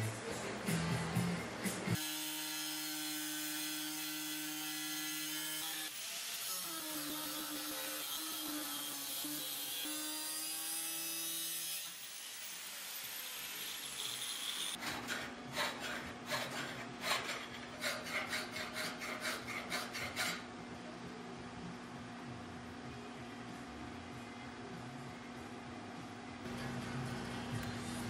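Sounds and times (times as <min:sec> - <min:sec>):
angle grinder grinding steel: 0:02.0 - 0:20.4
hand file rasping on steel: 0:13.8 - 0:20.5.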